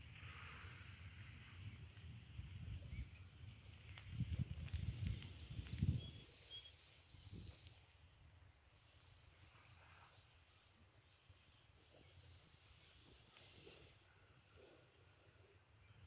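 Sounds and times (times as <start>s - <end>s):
wind buffeting microphone: 0.0s - 6.4s.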